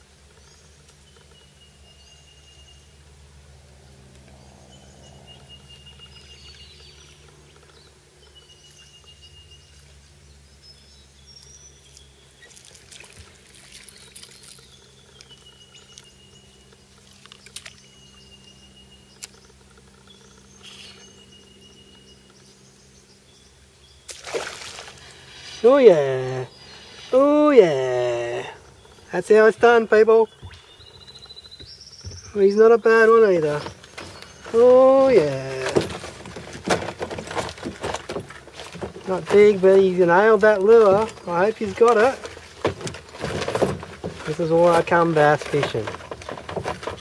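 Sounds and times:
birds whistling: 13.7 - 24.2, 24.8 - 36.3
soft splashes: 24.1 - 25.3.

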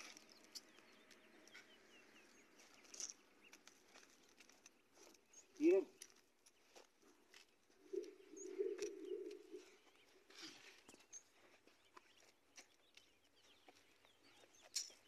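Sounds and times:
footsteps on dry soil: 0.0 - 15.0
low bird call: 7.8 - 12.0
high bird chirps: 7.9 - 15.0.

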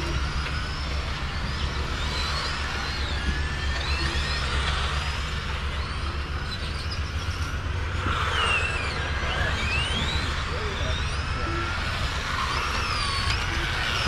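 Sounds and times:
electric toy truck motors whining: 0.0 - 14.0.

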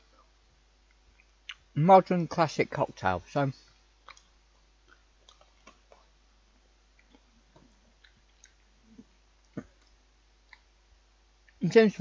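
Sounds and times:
chewing: 0.9 - 1.7, 4.0 - 6.2, 6.9 - 10.7
wet mouth clicks: 8.0 - 10.7.

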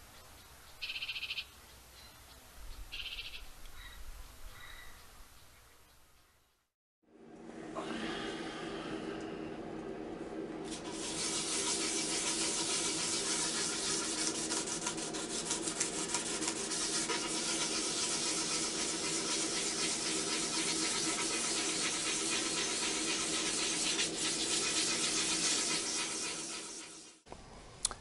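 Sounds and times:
sandpaper rubbing on frame: 10.7 - 27.2.

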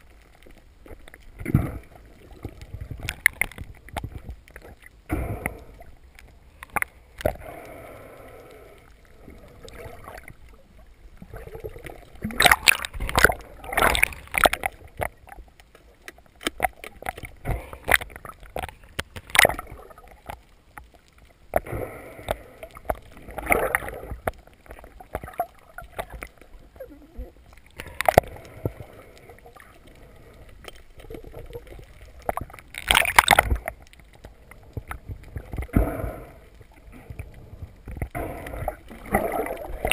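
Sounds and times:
water sloshing and gurgling: 0.0 - 39.9
underwater hiss: 7.2 - 10.2, 35.6 - 37.4.

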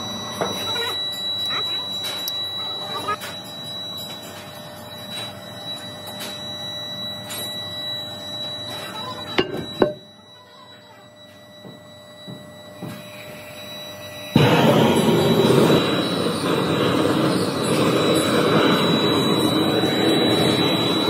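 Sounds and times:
workshop noise: 0.0 - 6.6, 7.2 - 10.1, 14.3 - 21.0
gas torch roaring: 12.8 - 21.0.

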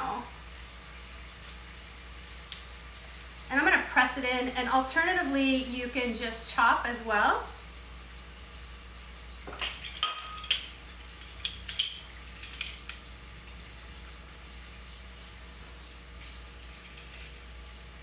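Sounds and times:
faint frying sizzle: 0.0 - 18.0
metal utensils clinking against a pan: 9.5 - 13.0.

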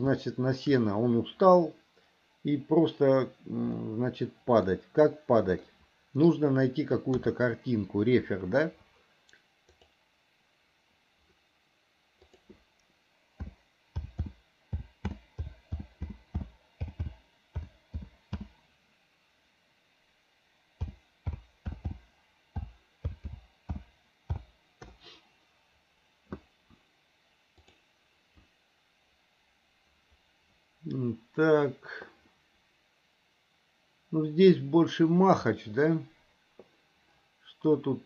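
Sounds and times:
typing on computer keyboard: 13.4 - 18.5, 20.8 - 22.0.

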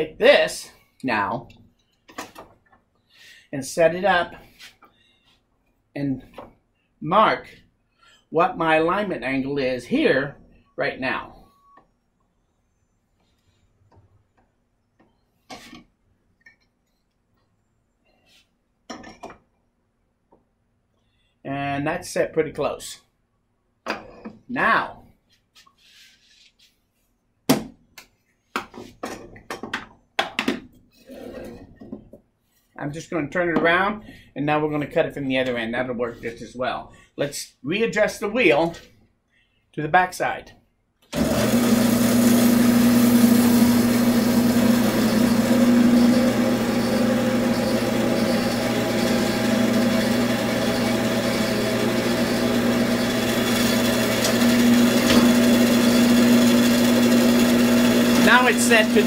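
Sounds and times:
wood and tools knocking: 28.5 - 30.8, 53.4 - 55.5
bandsaw motor hum: 41.2 - 59.0.

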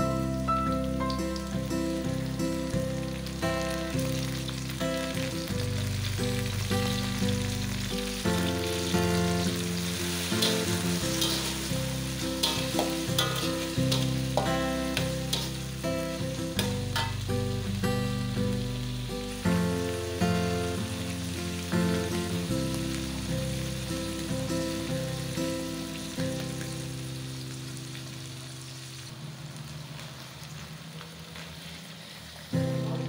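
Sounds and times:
paste sizzling in a wok: 0.1 - 33.0
metal spatula scraping a pan: 10.1 - 15.6.

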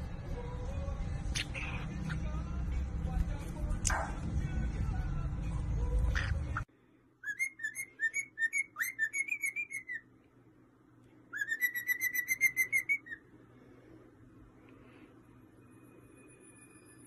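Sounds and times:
cockatiel whistling: 7.2 - 10.0, 11.4 - 13.2.

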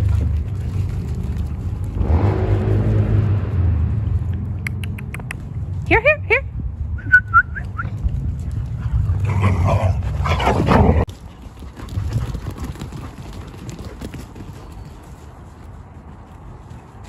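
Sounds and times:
rough dog noise: 8.2 - 14.8.

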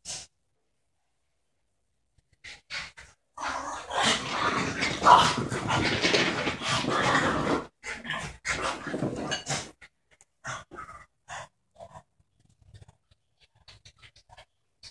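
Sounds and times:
dogs play-wrestling: 2.5 - 9.9.

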